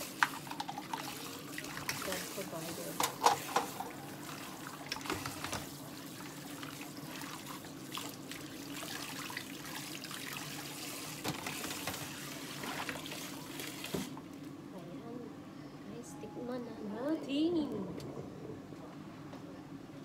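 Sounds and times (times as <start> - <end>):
tap water running into sink: 0.0 - 14.2.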